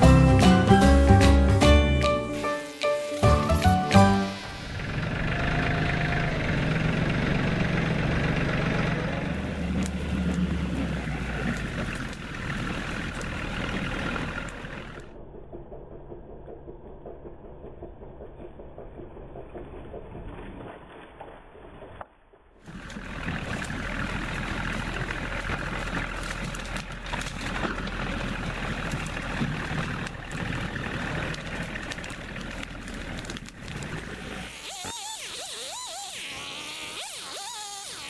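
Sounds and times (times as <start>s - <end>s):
loader dumping brush: 0.0s - 15.1s, 22.7s - 35.2s
diesel tractor engine running: 0.0s - 20.6s, 22.7s - 34.6s.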